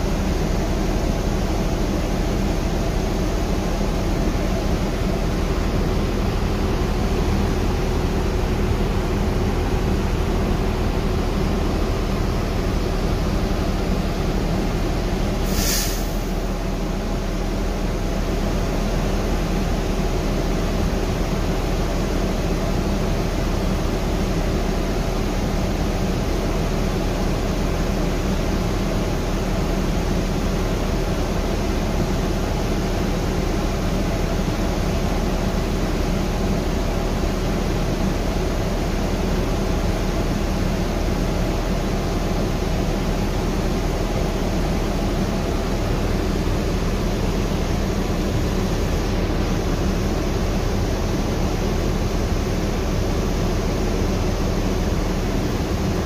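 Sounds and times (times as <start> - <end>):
bus cabin drone: 0.0 - 56.0
road noise: 0.0 - 56.0
short hiss: 15.4 - 16.4.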